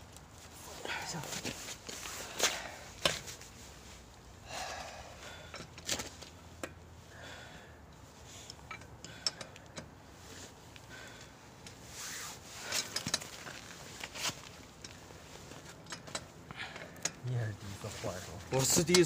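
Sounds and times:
lug wrench clanking on lug nuts: 8.4s - 10.0s.

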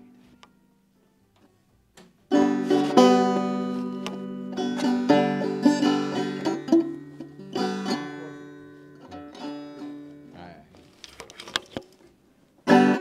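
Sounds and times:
banjo plucked chords: 2.2s - 10.6s, 12.6s - 13.0s.

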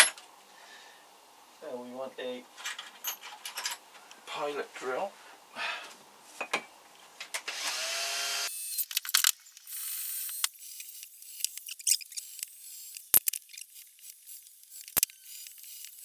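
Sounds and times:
cordless drill whine: 7.5s - 8.8s
drill bits clicking and rattling: 8.7s - 16.0s.

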